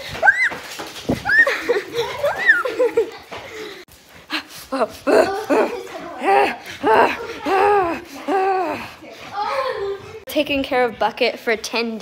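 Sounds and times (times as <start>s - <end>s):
person giggling: 1.3s - 8.9s.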